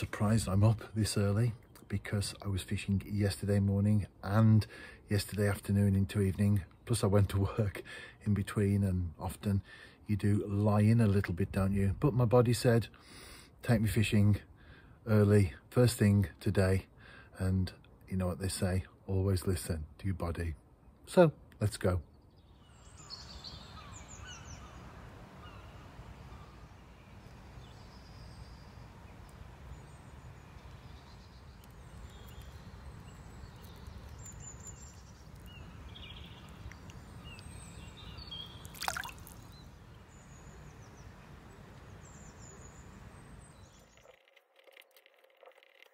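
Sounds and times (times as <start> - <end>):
small birds chirping: 20.9 - 44.2.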